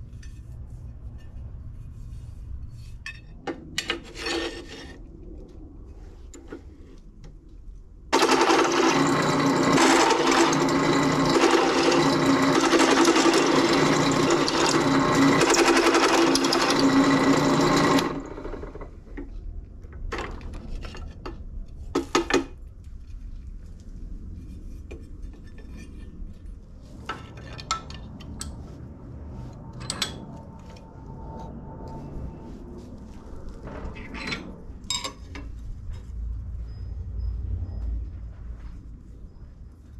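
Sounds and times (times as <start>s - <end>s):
drill press cutting steel: 8.2s - 18.8s.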